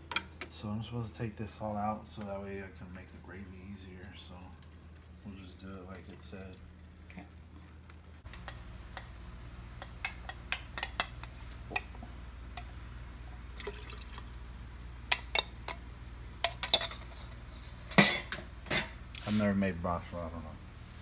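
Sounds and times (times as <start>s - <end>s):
liquid pouring and dripping: 13.5s - 14.8s.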